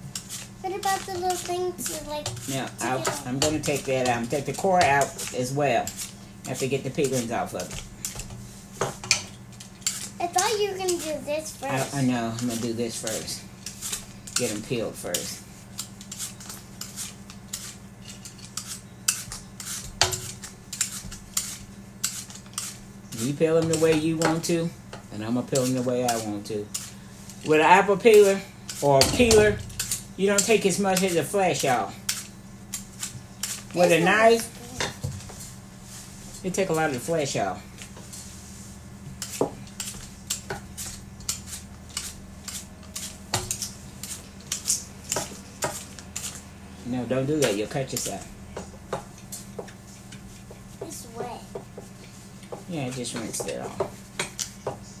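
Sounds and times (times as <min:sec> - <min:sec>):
steady low hum: 0:00.0 - 0:55.0
blade scraping apple peel: 0:00.1 - 0:07.6, 0:09.6 - 0:24.4, 0:25.4 - 0:34.8, 0:39.2 - 0:46.4.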